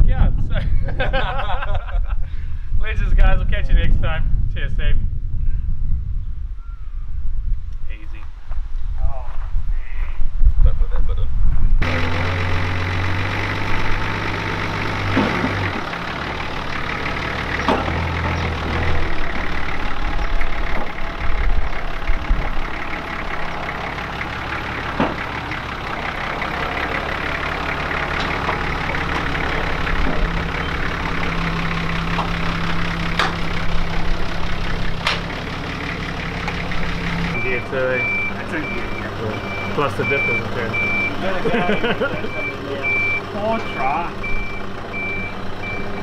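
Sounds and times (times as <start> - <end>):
truck engine idling: 11.8 - 46.0.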